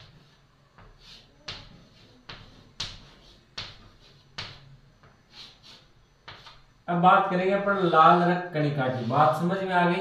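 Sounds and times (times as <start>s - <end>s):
chalk tapping on chalkboard: 0.0s - 6.7s.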